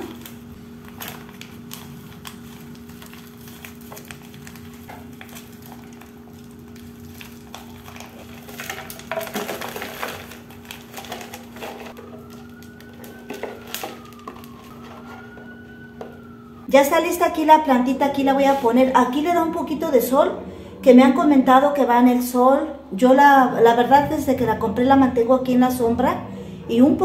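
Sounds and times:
potting soil crumbling: 0.0 - 16.3
plastic bag crinkling: 0.0 - 16.4
distant siren: 10.7 - 27.0.

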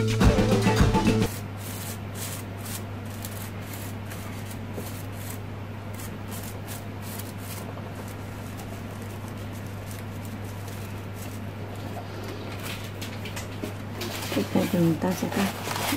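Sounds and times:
steady low hum: 0.0 - 15.9
paper petals rustling: 1.3 - 13.0, 13.7 - 15.9.

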